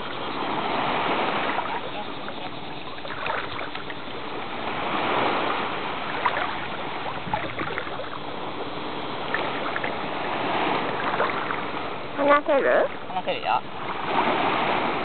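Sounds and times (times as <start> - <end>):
water sloshing and splashing: 0.0 - 15.0
small sharp splashes: 2.9 - 4.0, 5.1 - 8.2, 9.2 - 11.8.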